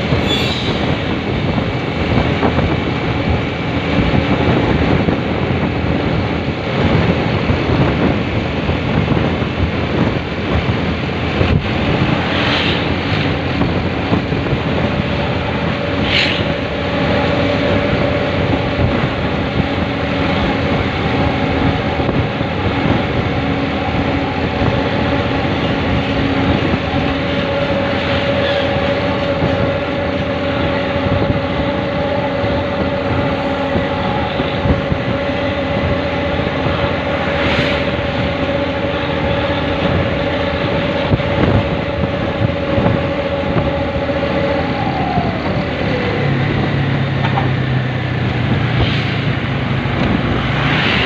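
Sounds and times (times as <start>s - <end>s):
road and wind noise: 0.0s - 51.0s
vehicle engine drone: 0.0s - 51.0s.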